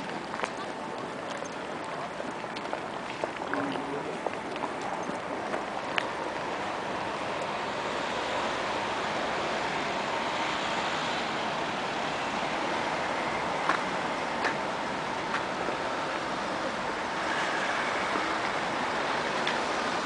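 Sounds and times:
cars passing with tyre hiss: 4.7s - 20.0s.

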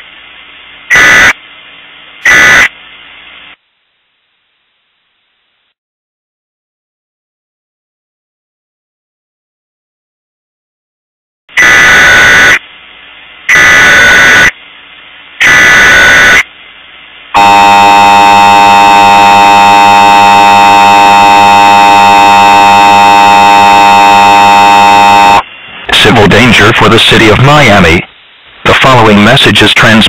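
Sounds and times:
harsh two-tone alert buzz: 11.6s - 12.6s, 13.5s - 14.5s, 15.4s - 16.4s, 17.4s - 28.0s.

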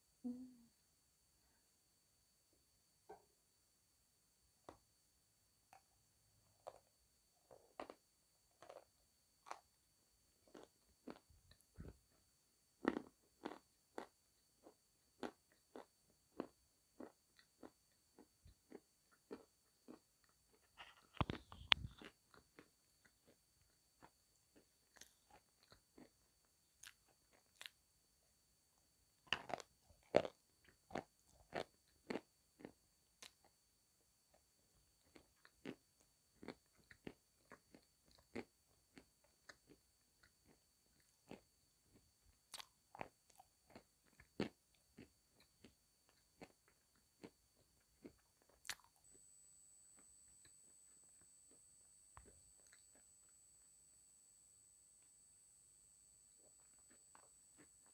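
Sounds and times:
crunching and chewing chalk: 5.7s - 27.8s, 28.7s - 33.6s, 34.3s - 49.2s, 56.4s - 57.9s.

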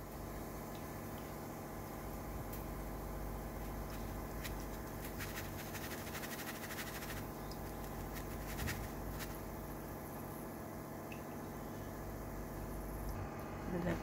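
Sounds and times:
steady low hum: 0.0s - 14.0s
fried garlic rattling in strainer: 3.9s - 9.5s.

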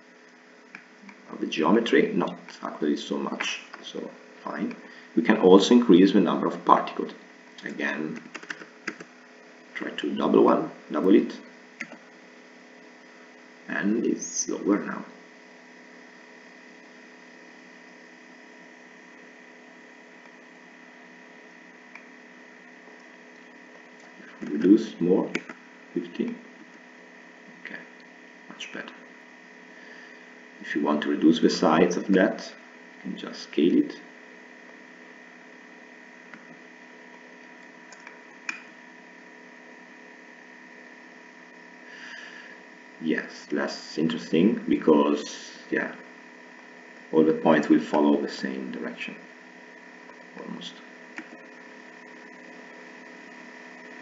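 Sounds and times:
steady electrical hum: 0.0s - 54.0s
high whine: 41.4s - 54.0s.

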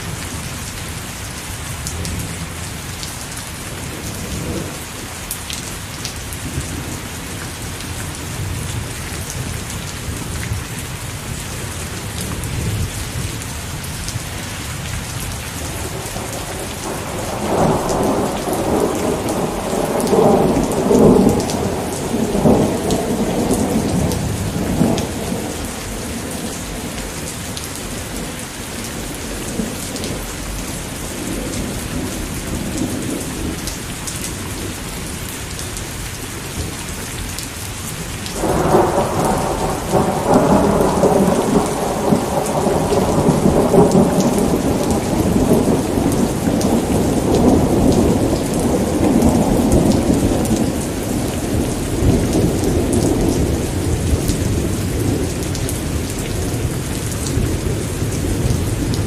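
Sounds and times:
steady rain falling: 0.0s - 59.0s
thunder rumbling: 15.6s - 33.7s, 38.4s - 59.0s.

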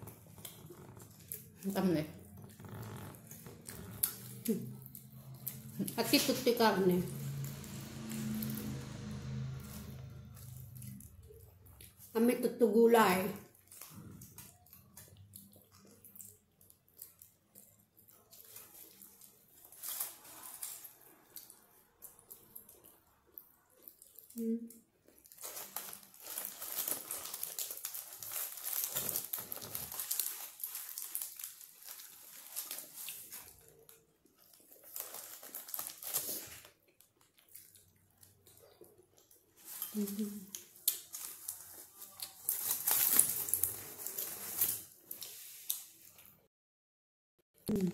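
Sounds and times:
person chewing food: 0.0s - 5.8s, 7.2s - 12.1s, 13.5s - 46.4s
crinkly bites into a wrap: 13.5s - 22.8s, 25.1s - 46.3s.

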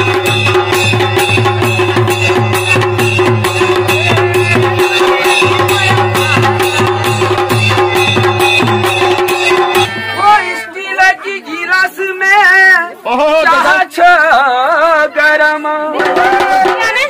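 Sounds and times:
drum beats: 0.0s - 10.6s, 15.9s - 17.0s
person singing with vibrato: 9.0s - 17.0s.

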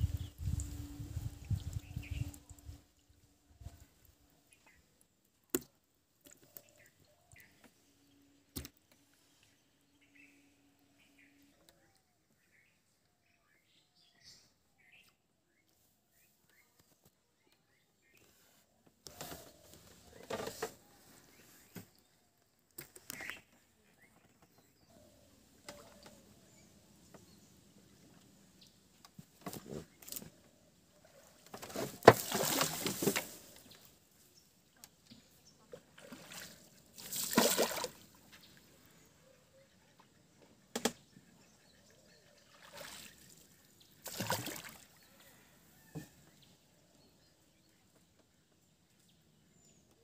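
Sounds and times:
water sloshing and splashing: 31.0s - 33.9s, 35.6s - 38.4s, 42.4s - 45.1s.

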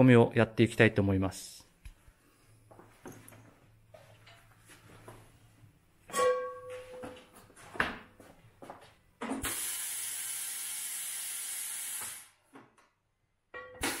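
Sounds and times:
metallic clang ringing: 6.1s - 7.3s, 13.6s - 13.9s
compressed air hiss: 9.4s - 12.4s.

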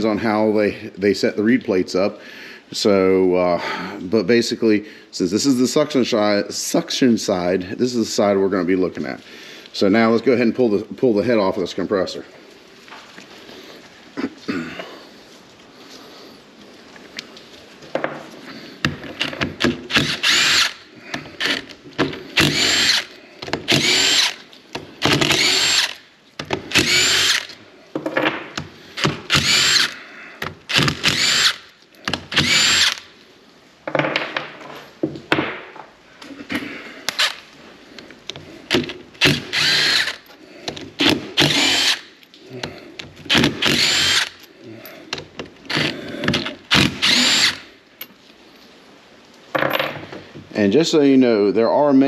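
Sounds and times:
cordless power driver spinning: 18.8s - 27.6s, 28.6s - 33.1s, 38.3s - 42.1s, 43.3s - 44.4s, 45.7s - 47.7s.

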